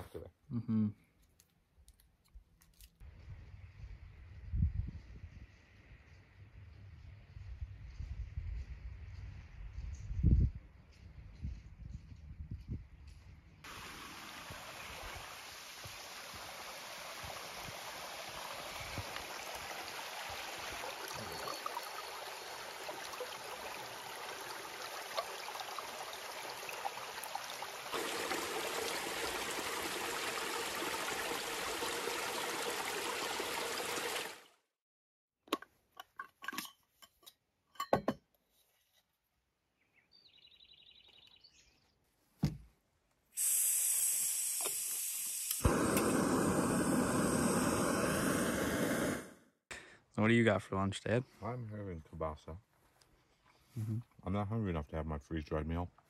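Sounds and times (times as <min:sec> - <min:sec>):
stream running over rocks: 0:13.7 - 0:34.5
gas stove burner hissing: 0:43.4 - 0:49.4.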